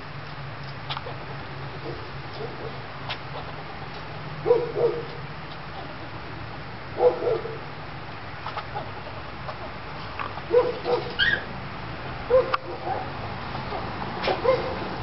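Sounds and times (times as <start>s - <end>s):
animal clucking calls: 8.4s - 11.5s.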